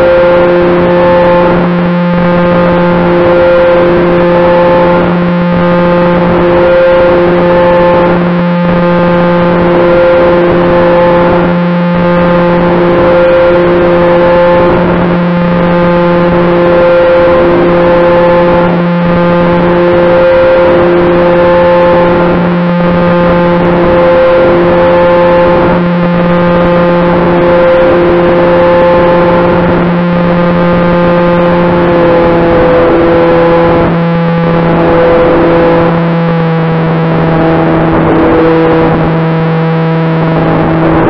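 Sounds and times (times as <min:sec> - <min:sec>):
model airplane propellers droning: 0:00.0 - 0:41.0.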